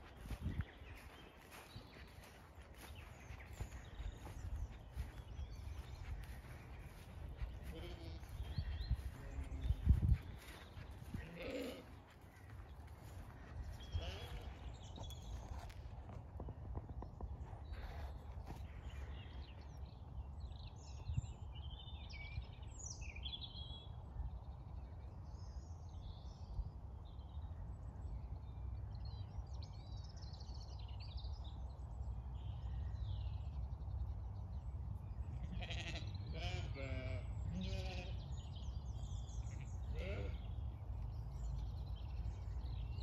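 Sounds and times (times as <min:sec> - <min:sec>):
small birds chirping: 0:00.0 - 0:43.0
sheep bleating: 0:07.4 - 0:09.8, 0:11.0 - 0:12.1, 0:13.8 - 0:14.6, 0:35.4 - 0:38.2, 0:39.5 - 0:40.5.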